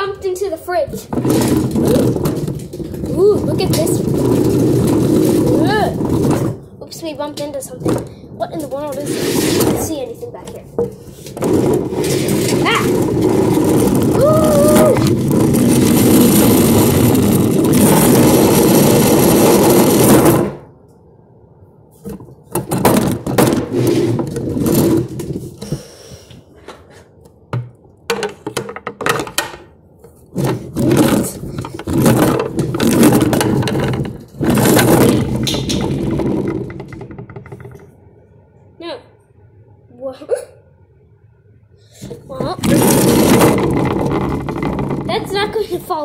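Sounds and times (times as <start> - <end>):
rubbing and scraping on microphone: 0.0 - 20.7, 21.9 - 25.9, 30.0 - 37.9, 42.0 - 46.0
short scrapes and rattles: 0.0 - 20.7, 21.9 - 25.9, 30.0 - 37.9, 42.0 - 46.0.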